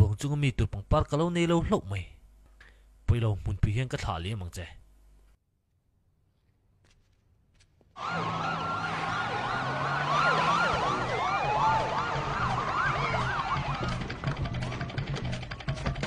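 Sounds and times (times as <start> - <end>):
sirens yelping: 8.0 - 15.0.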